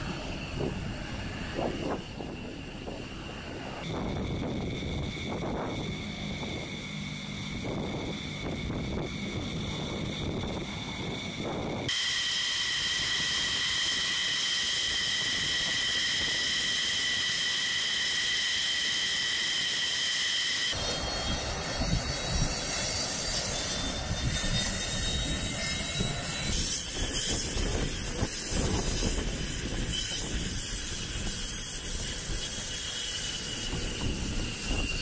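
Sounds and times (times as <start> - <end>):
jet engine rumble: 0.0 - 35.0
jet engine turbine whine: 0.0 - 35.0.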